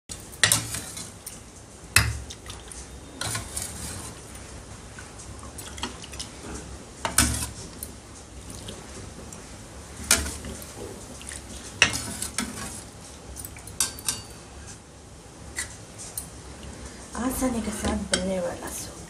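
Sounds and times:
metal ladle clinking on bowl: 13.4s - 14.4s.

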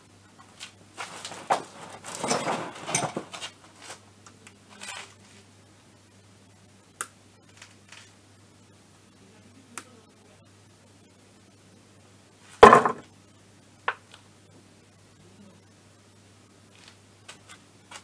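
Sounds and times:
rustling and scraping handling: 0.4s - 5.5s.

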